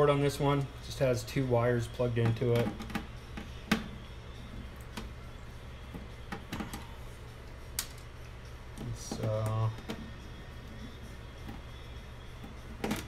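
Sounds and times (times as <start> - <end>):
wire connectors clicking: 7.7 - 8.1, 8.7 - 10.1.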